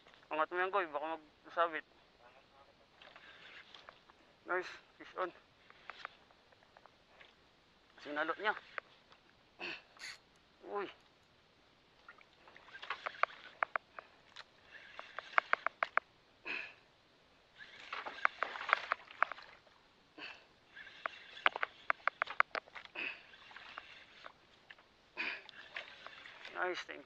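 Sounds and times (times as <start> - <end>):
fishing reel clicking: 14.7 - 16.0, 20.7 - 22.6.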